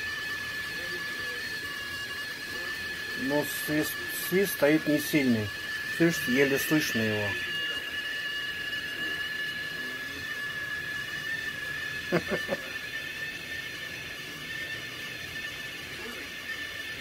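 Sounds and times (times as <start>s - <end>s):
kettle whistling faintly: 0.0s - 17.0s.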